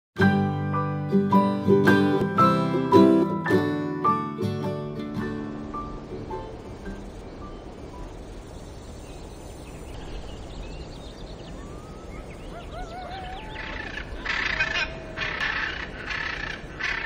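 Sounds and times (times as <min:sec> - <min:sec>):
bird calls and chirps: 0:06.0 - 0:17.0.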